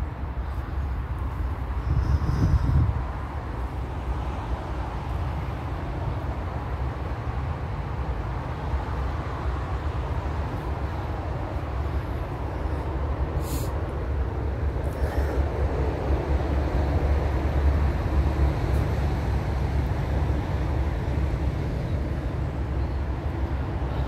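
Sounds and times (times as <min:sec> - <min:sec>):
road traffic rumble: 0:00.0 - 0:24.0
brief high hiss: 0:13.4 - 0:13.8.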